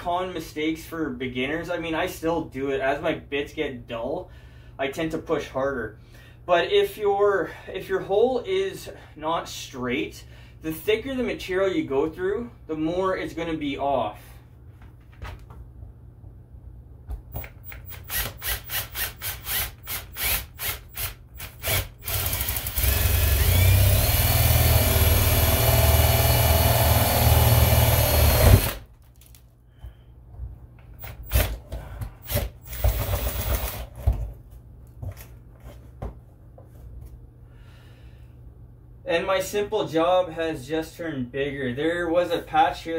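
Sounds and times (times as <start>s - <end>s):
cordless drill boring: 17.6s - 28.8s, 31.0s - 31.6s, 32.2s - 33.9s.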